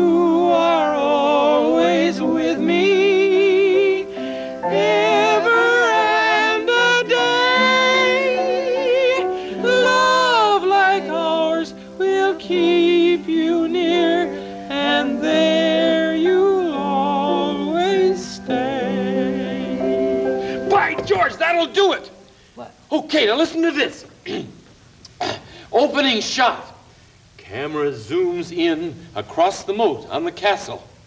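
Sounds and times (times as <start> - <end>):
voices singing in parts: 0.0 - 21.4
held accompaniment: 0.0 - 22.2.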